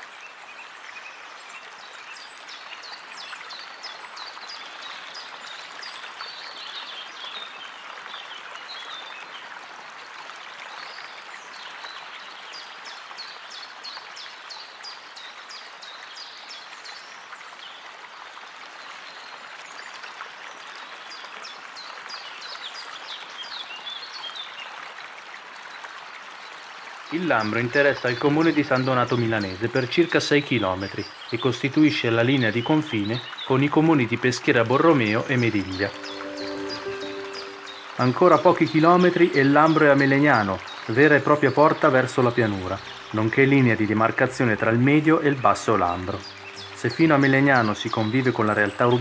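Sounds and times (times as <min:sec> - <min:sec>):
small birds chirping: 0:27.1 - 0:49.0
river water rushing: 0:32.8 - 0:49.0.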